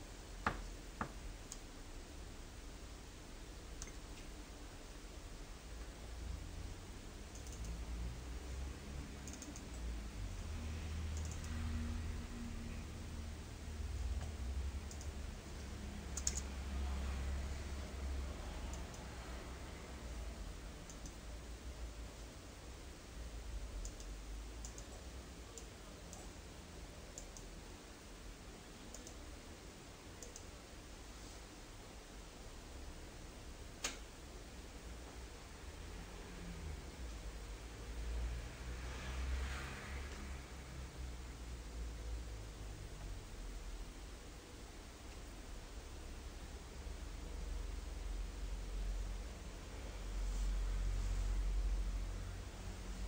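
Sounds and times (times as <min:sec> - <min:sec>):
low steady hum: 0:00.0 - 0:53.0
low steady rumble: 0:00.0 - 0:53.0
computer mouse clicks: 0:00.4 - 0:01.7, 0:03.8 - 0:04.3, 0:07.3 - 0:08.0, 0:09.1 - 0:09.9, 0:11.0 - 0:12.0, 0:14.1 - 0:15.2, 0:16.1 - 0:16.6, 0:18.6 - 0:19.2, 0:20.8 - 0:21.3, 0:23.8 - 0:26.4, 0:27.1 - 0:27.6, 0:28.8 - 0:29.2, 0:30.2 - 0:30.6, 0:33.8 - 0:34.1
mouse-button clicks: 0:09.2 - 0:09.8, 0:16.1 - 0:16.5.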